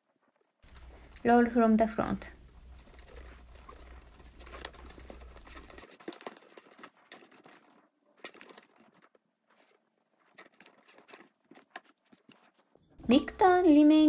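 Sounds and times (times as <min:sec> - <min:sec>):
bamboo mat clicks and rustles: 0:02.8 - 0:12.8.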